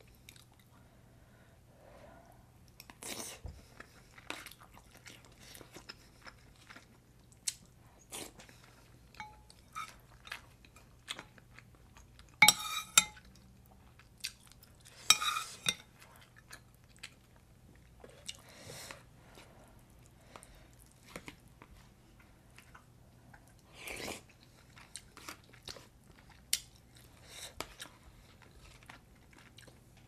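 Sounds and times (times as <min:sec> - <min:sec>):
chewing with full mouth: 0:02.7 - 0:12.4, 0:13.2 - 0:15.1, 0:15.9 - 0:19.0, 0:19.8 - 0:30.0
metal spoon scraping ceramic pot: 0:12.4 - 0:13.2, 0:15.1 - 0:15.8.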